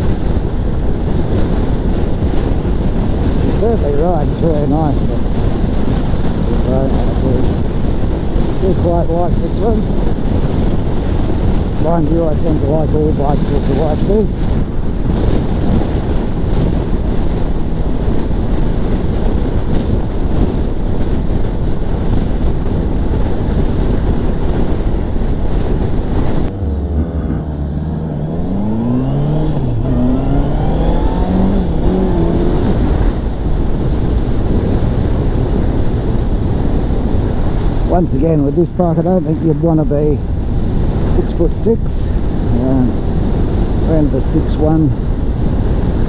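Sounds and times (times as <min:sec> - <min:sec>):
wind noise on microphone: 0:00.0 - 0:46.0
motorcycle engine revving: 0:26.2 - 0:33.7.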